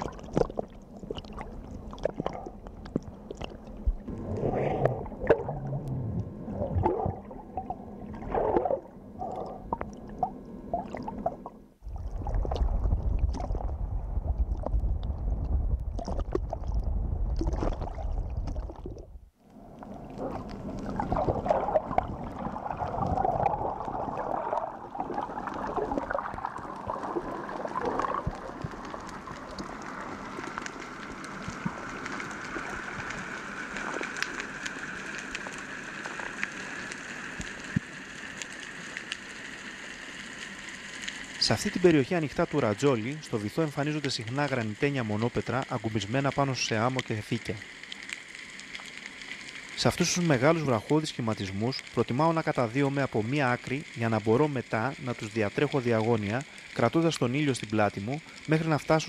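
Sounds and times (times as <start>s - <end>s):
underwater knocks and clicks: 0.0s - 19.2s
low rumble of choppy water: 0.0s - 59.0s
underwater hiss with crackling: 19.4s - 59.0s.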